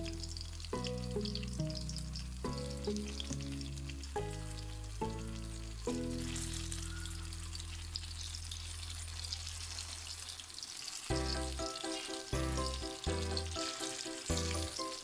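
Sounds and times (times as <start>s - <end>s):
background music: 0.0s - 7.7s, 11.1s - 15.0s
food sizzling in hot oil: 0.0s - 15.0s.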